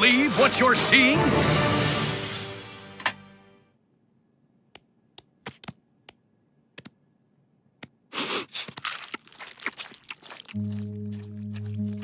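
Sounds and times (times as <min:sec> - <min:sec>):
sharp clicks and taps: 0:04.7 - 0:07.0.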